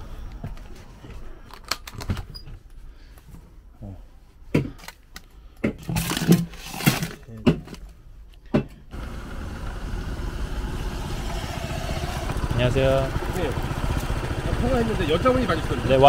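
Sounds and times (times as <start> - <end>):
fridge door and cans clattering: 5.6 - 7.9
motor scooter engine running: 8.9 - 16.0.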